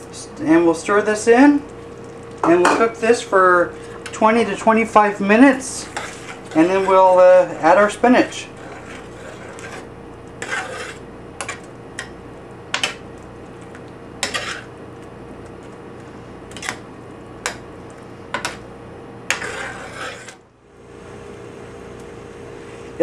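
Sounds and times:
steady hum: 0.0 - 23.0
spoon scraping a pan: 5.8 - 11.7, 14.2 - 14.7, 19.3 - 20.4.

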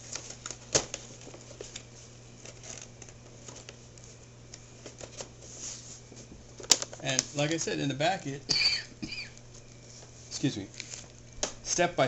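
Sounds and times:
packaging rustling and clicking: 0.0 - 5.4, 6.5 - 7.7
steady low hum: 0.0 - 12.0.

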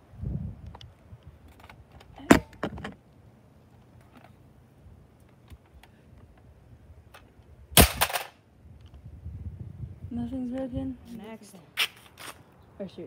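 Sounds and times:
handling clicks and knocks: 1.5 - 3.0.

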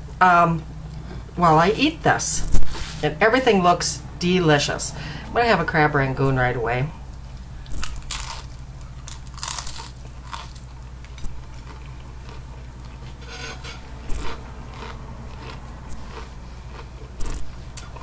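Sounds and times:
crunching and chewing of fried food: 7.1 - 18.0.

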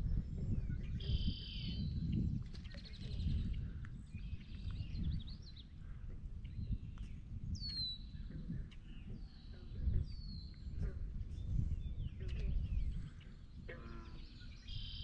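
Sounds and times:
constant low rumble: 0.0 - 15.0
bird chirps: 0.8 - 3.6, 6.5 - 15.0.

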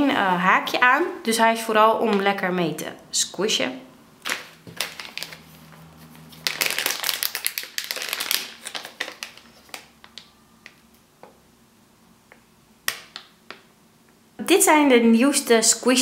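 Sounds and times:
plastic bag crinkling: 4.2 - 10.9.

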